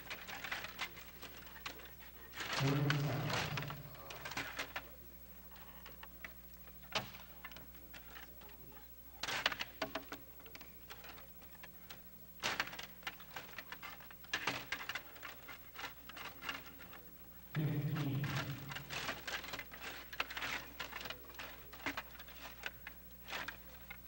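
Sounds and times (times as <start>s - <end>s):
plastic players clacking on puck: 9.2s - 24.0s.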